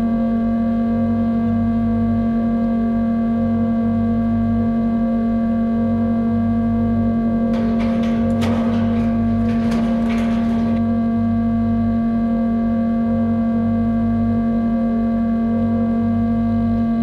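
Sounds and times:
low hum: 0:07.5 - 0:11.5.

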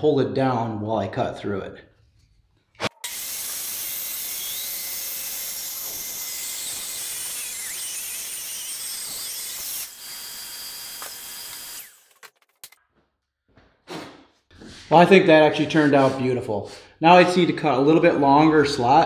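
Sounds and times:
table saw whining: 0:02.8 - 0:12.4.

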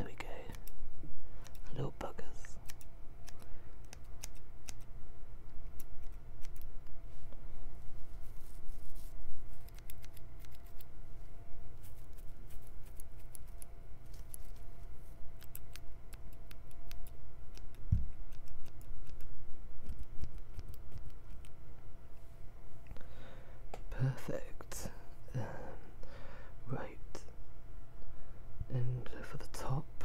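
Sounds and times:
scissors snipping: 0:00.5 - 0:00.8, 0:02.6 - 0:04.9, 0:05.6 - 0:06.7, 0:09.6 - 0:10.9, 0:15.4 - 0:21.6.

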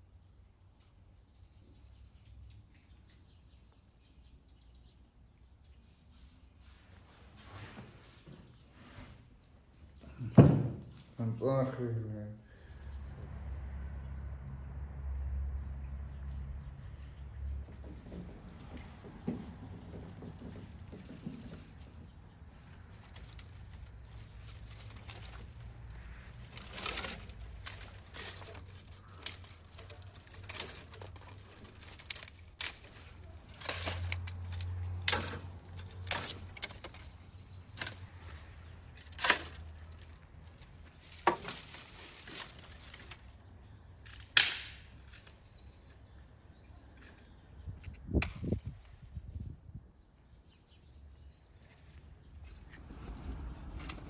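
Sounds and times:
sharp knocks and clicks: 0:17.4 - 0:22.2.

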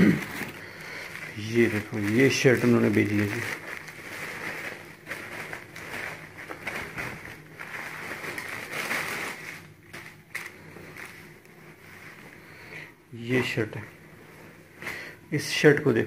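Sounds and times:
plastic wrapping crinkling: 0:00.0 - 0:12.8.

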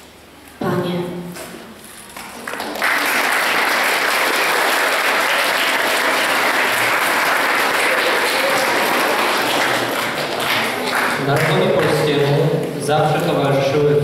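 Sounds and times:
audience applauding: 0:02.3 - 0:12.3.

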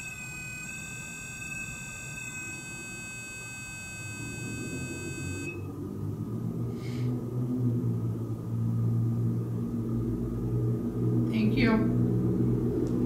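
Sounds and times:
high-pitched electronic whine: 0:00.0 - 0:05.8
low steady hum: 0:00.0 - 0:13.0.

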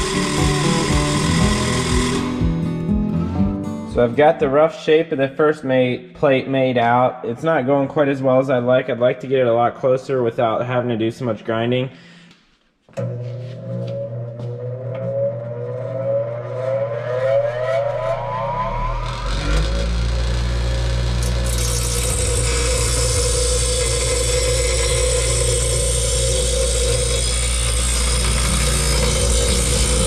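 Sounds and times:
steel plate grinding hiss: 0:00.0 - 0:02.3, 0:21.2 - 0:30.0
bench grinder motor whining: 0:00.0 - 0:02.6, 0:13.0 - 0:30.0.

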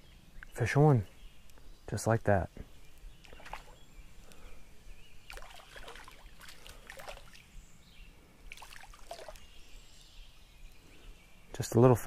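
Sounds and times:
faint creek flowing: 0:00.3 - 0:12.0
fish splashing in water: 0:03.2 - 0:03.8, 0:05.3 - 0:07.4, 0:08.5 - 0:09.5.

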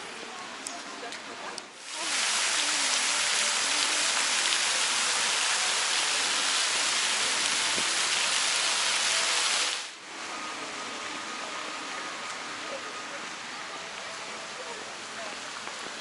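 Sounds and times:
fountain water splashing: 0:01.8 - 0:16.0.

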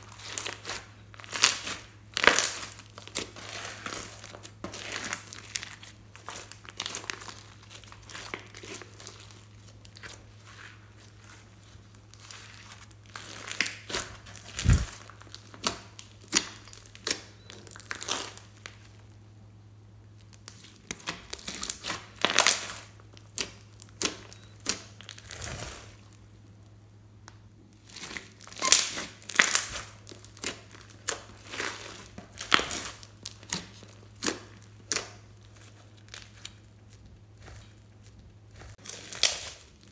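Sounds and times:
slime squelching and crackling: 0:00.0 - 0:19.2, 0:20.1 - 0:26.7, 0:27.6 - 0:39.9.

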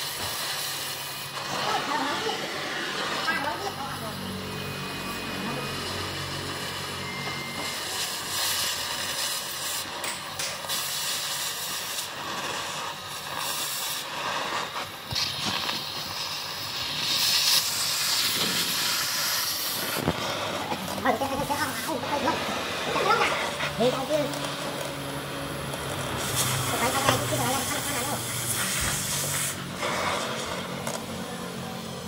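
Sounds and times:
cutting torch hissing: 0:00.0 - 0:32.0.

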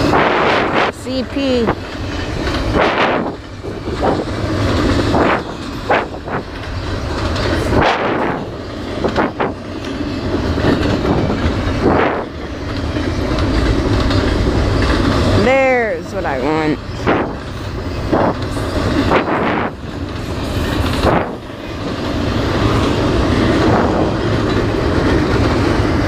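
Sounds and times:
train wagons clacking and clanking: 0:00.0 - 0:26.0
train wheels rumbling on rails: 0:00.0 - 0:26.0.

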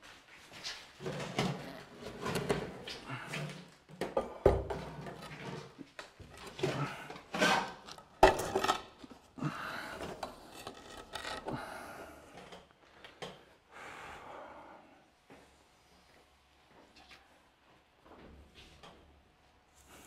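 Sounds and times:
scraping and rubbing: 0:04.9 - 0:11.7.

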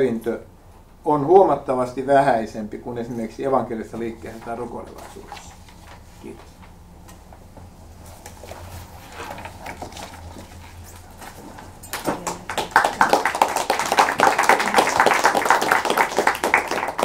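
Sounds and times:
audience applauding: 0:11.9 - 0:17.0.

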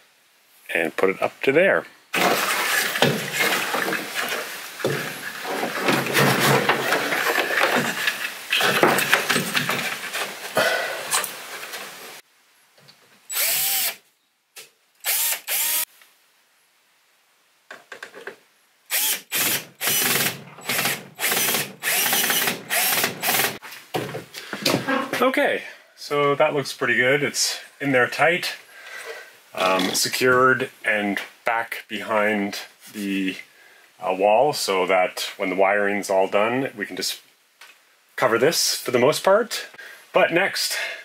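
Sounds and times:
cordless drill driving screws: 0:13.3 - 0:14.0, 0:15.0 - 0:15.9, 0:18.9 - 0:23.6.

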